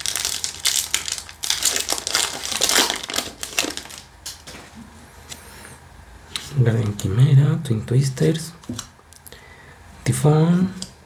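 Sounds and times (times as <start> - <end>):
foil wrapper crinkling: 0.0 - 4.6.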